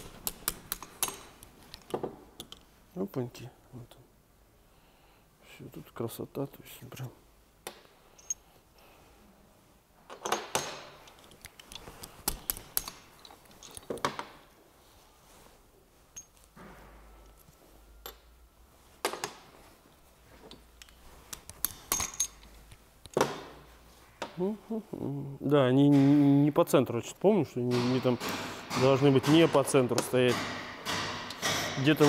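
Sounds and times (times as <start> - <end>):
metal parts clinking and knocking: 0.0 - 2.7, 8.1 - 8.4, 10.1 - 14.4, 16.1 - 16.6, 20.4 - 23.2.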